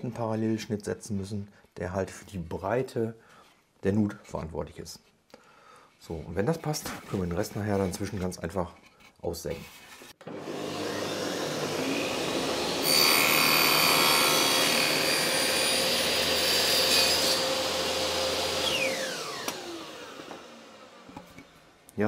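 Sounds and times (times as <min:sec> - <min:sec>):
table saw cutting wood: 0:10.2 - 0:21.8
saw blade winding down whine: 0:18.2 - 0:21.6.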